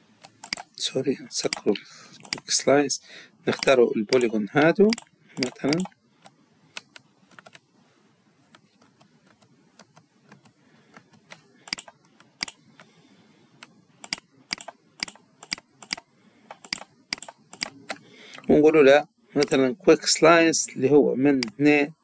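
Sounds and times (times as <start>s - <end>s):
mouse and keyboard clicks: 0.2s - 0.7s, 1.4s - 2.5s, 3.5s - 7.6s, 8.5s - 12.9s, 13.6s - 18.0s.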